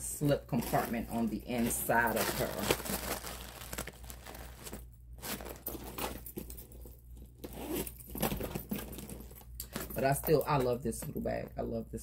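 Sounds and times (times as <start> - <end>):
bag rustling: 0.5 - 10.0
metal zipper rasping: 1.6 - 9.8.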